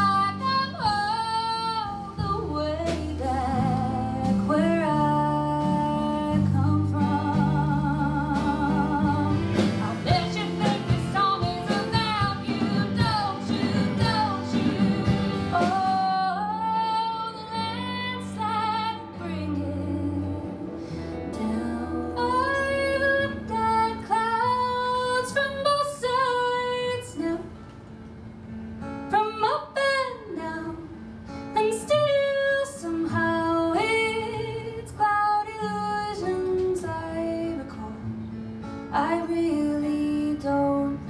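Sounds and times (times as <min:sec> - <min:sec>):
woman singing gliding notes: 0:00.0 - 0:27.5
acoustic guitar and band: 0:00.0 - 0:41.0.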